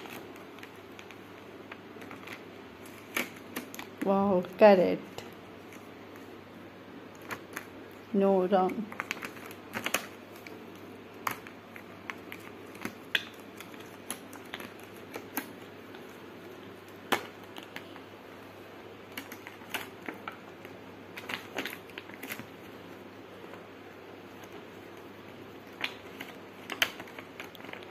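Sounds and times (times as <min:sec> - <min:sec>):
plastic bag crinkling: 0:07.1 - 0:18.1, 0:24.2 - 0:27.9.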